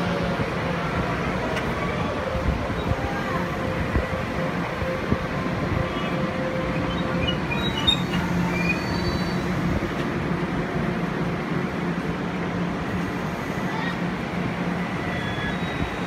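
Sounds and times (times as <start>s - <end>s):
electric train rumble and hum: 0.0s - 16.0s
wheel squeals: 6.8s - 9.7s, 15.0s - 16.0s.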